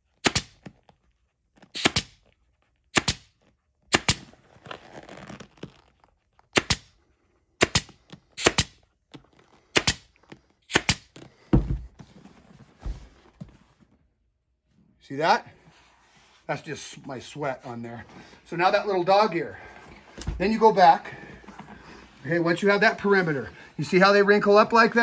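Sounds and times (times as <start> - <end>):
pneumatic stapler firing: 0.2 - 0.6, 1.8 - 2.2, 3.0 - 3.3, 3.9 - 4.2, 6.6 - 6.8, 7.6 - 8.8, 9.8 - 10.0, 10.7 - 11.0.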